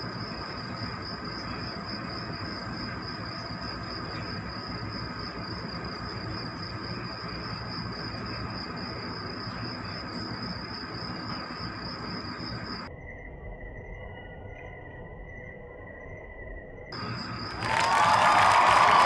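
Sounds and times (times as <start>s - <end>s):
ship deck drone: 17.0s - 19.0s.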